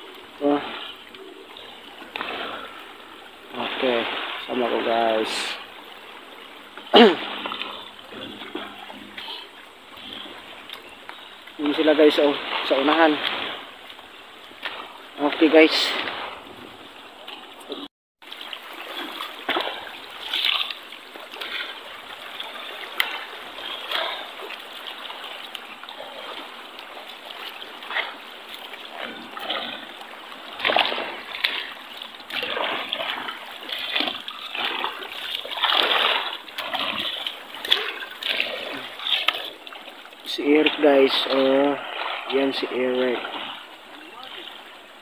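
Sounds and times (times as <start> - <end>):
footsteps splashing through water: 17.2 - 44.6.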